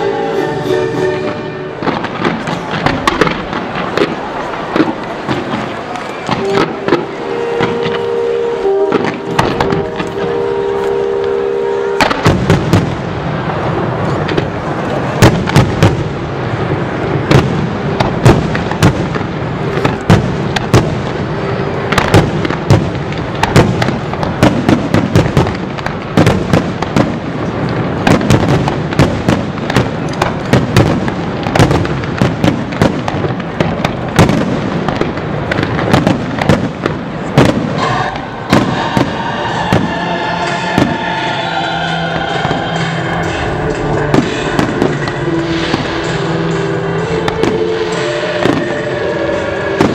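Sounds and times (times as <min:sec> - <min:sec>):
fireworks bursting with sharp bangs: 0:01.0 - 0:49.9
continuous rumble: 0:01.3 - 0:49.9.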